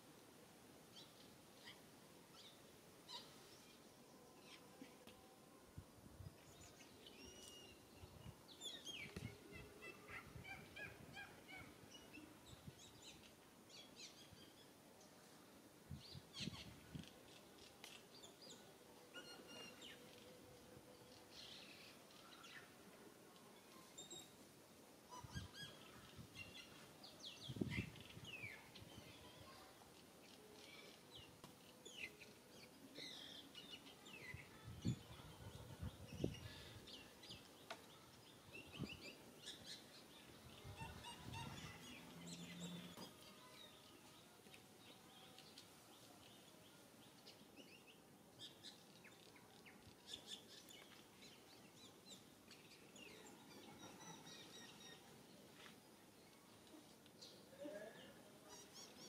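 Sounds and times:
bird chirps and calls: 31.8 - 44.0.

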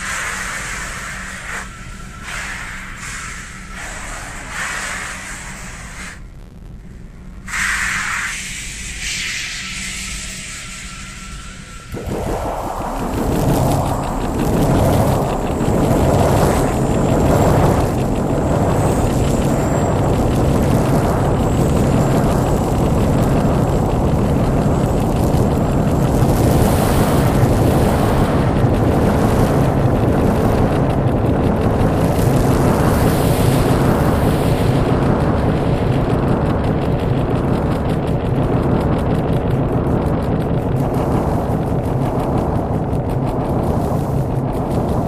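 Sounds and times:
rumbling noise drone: 0.0 - 45.0
faint high whistle: 7.5 - 12.0.

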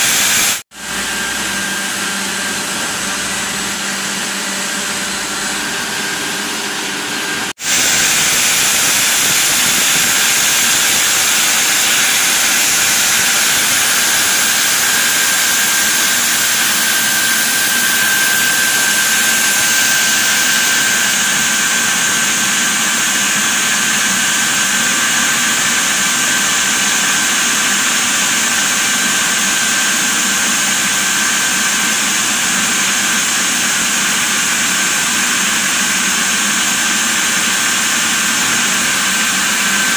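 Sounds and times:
band saw cutting a log: 0.0 - 39.9.

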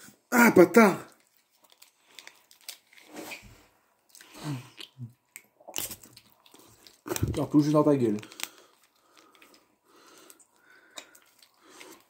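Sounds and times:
plastic sachet crinkling: 1.1 - 3.5, 5.2 - 12.0
throaty sounds of effort: 4.1 - 7.5.

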